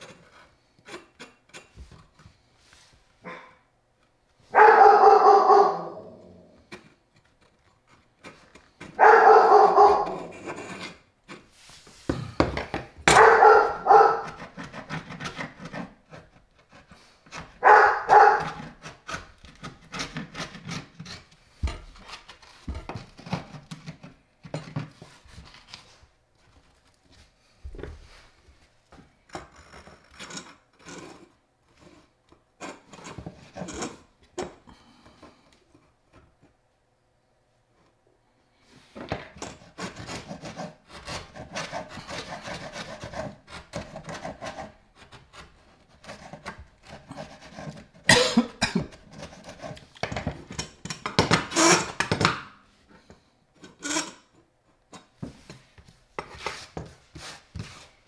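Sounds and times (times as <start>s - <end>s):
chisel scraping particleboard: 0.0s - 2.9s, 6.6s - 26.0s, 29.0s - 35.5s, 38.8s - 54.4s, 55.0s - 58.0s
dog barking loudly: 3.3s - 3.6s, 4.5s - 6.2s, 9.0s - 10.3s, 13.1s - 14.4s, 17.6s - 18.6s.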